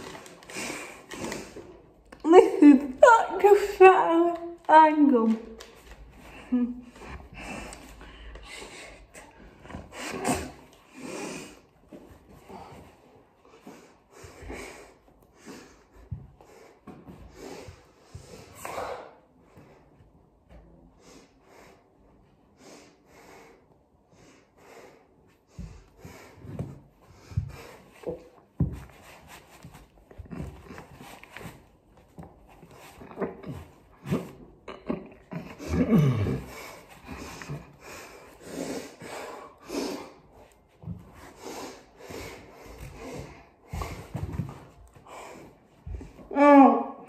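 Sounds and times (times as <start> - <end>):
person breathing and snorting: 6.2 - 11.7, 32.9 - 46.2.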